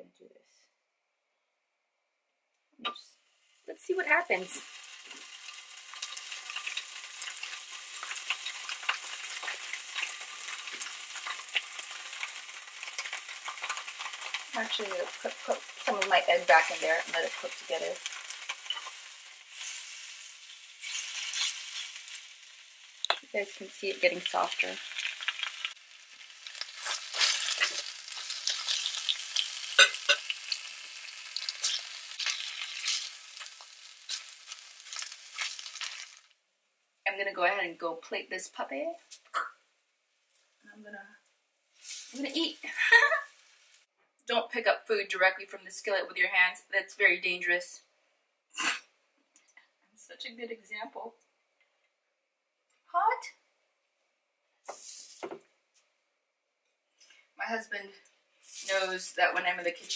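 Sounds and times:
food sizzling in oil: 3.2 - 36.4, 41.7 - 43.9, 54.6 - 55.4, 58.4 - 59.9
utensils scraping a griddle: 20.4 - 22.1.

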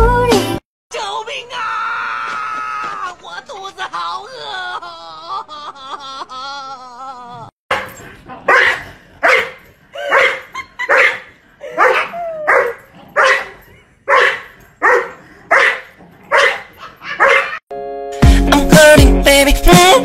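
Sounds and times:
dogs barking: 7.7 - 17.6
music with a beat: 18.1 - 20.0.

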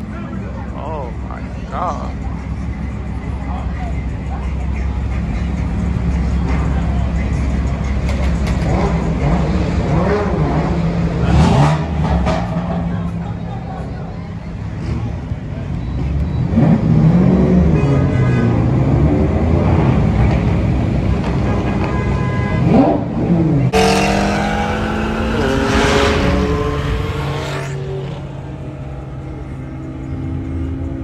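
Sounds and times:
sports car engine revving: 8.3 - 12.6, 22.6 - 30.2
cars accelerating hard: 8.4 - 13.3, 16.0 - 21.9, 22.6 - 30.8.

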